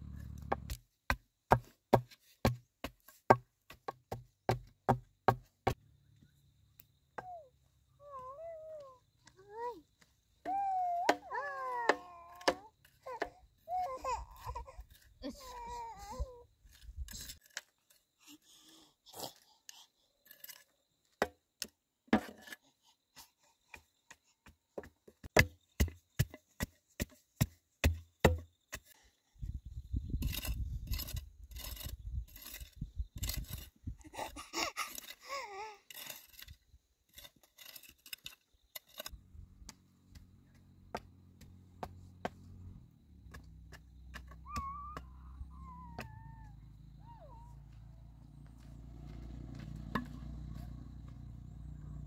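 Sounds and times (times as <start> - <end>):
sharp irregular knocks and taps: 0.4 - 5.8, 24.4 - 28.9
rustling and scraping: 35.9 - 39.2.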